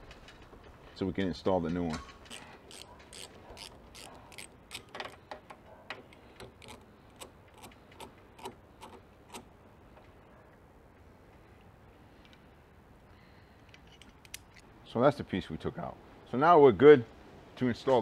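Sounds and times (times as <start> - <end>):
socket ratchet clicking: 2.3 - 5.2, 6.1 - 9.5.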